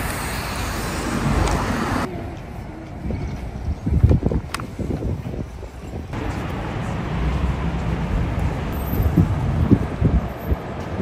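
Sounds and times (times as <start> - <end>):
wind on microphone: 0.0 - 6.2, 7.6 - 11.0
traffic passing: 0.0 - 11.0.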